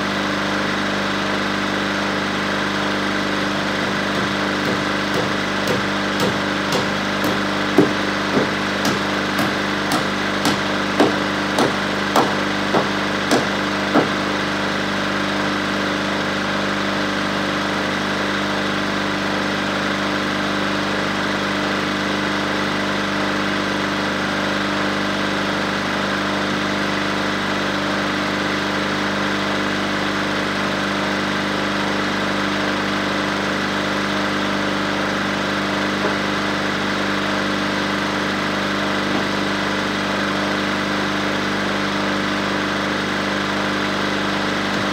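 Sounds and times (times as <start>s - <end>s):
bulldozer engine idling: 2.4s - 15.0s
hammer blows on wood: 3.8s - 14.2s.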